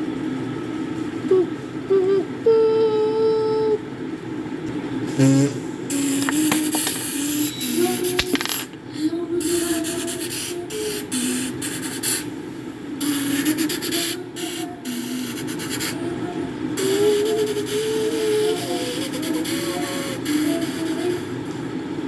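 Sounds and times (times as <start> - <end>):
hissing noise: 5.1 - 8.5
person humming: 5.1 - 11.7, 13.0 - 21.4.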